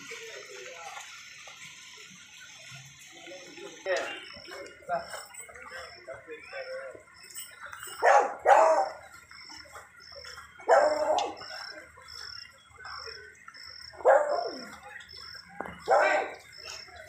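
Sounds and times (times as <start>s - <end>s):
dog barking: 8.0s - 9.1s, 10.6s - 11.4s, 14.0s - 14.7s, 15.8s - 16.4s.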